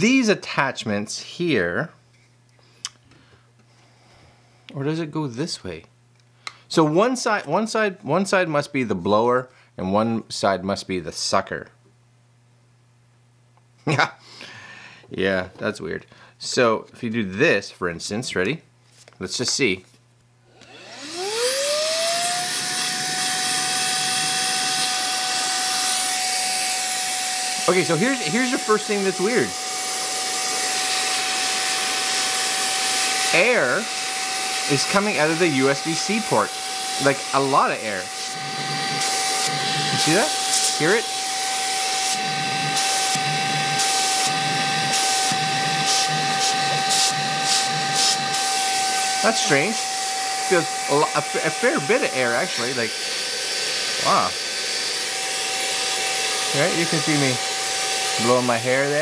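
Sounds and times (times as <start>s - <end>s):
handheld vacuum motor whine: 20.5s - 59.0s.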